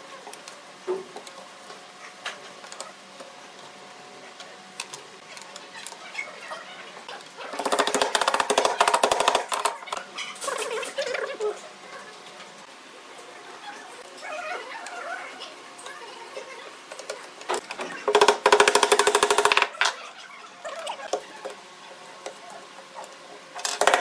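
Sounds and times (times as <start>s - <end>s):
fast wooden clatter: 7.6s - 10.0s, 23.6s - 24.0s
wooden blocks knocking: 7.6s - 10.0s, 18.0s - 20.0s, 23.6s - 24.0s.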